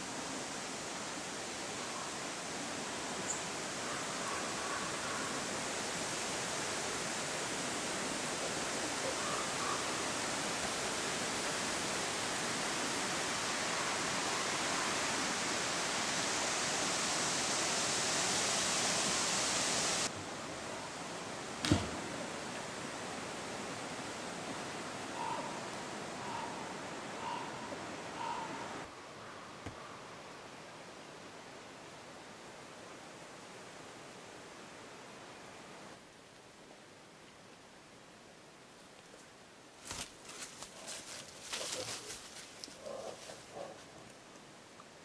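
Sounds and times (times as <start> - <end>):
forest ambience hiss: 0.0 - 45.0
sharp knock: 21.6 - 22.0.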